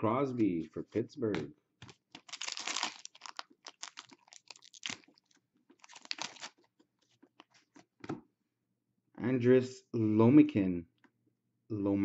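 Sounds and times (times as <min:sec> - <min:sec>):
foil wrapper tearing and crinkling: 0:02.0 - 0:06.6.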